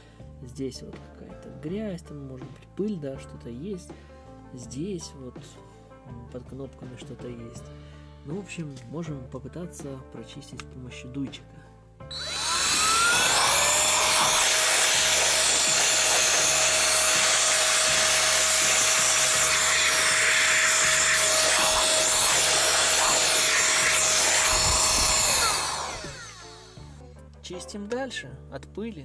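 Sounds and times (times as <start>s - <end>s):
air duster motor whine: 12.1s - 27.0s
rushing air: 21.2s - 26.2s.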